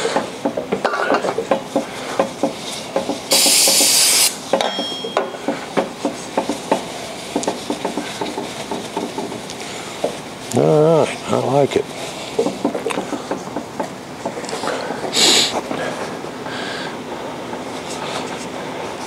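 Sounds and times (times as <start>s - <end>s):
spray hiss: 3.3s - 4.4s
metal clinks and knocks: 4.5s - 5.6s
paper towels wiping metal: 6.0s - 16.2s.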